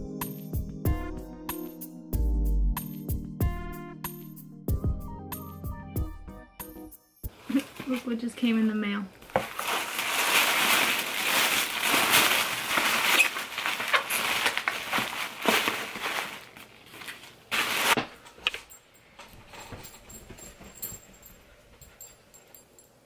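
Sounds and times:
paper and plastic crinkling: 7.3s - 18.7s.

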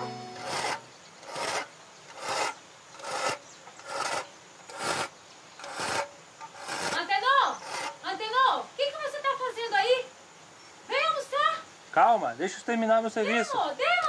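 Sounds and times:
hand file rasping: 0.3s - 8.0s.

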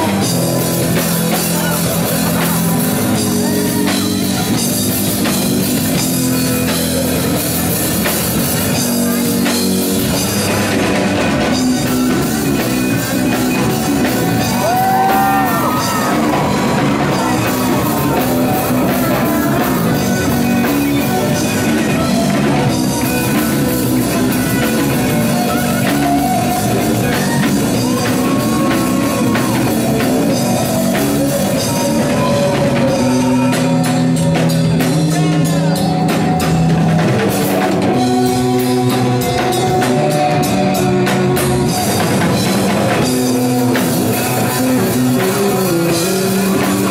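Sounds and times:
distorted electric guitar: 0.0s - 46.9s
drum kit: 0.0s - 46.9s
electric bass: 0.0s - 46.9s.

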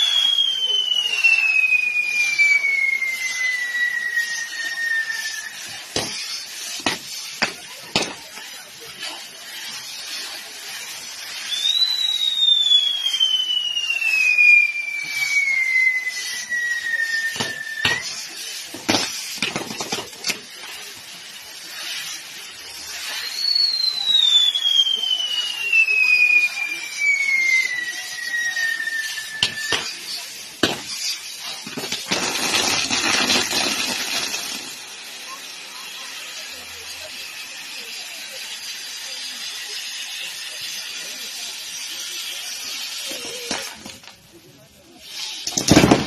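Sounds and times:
firework whistle: 0.0s - 46.0s
fireworks hissing: 0.0s - 46.0s.

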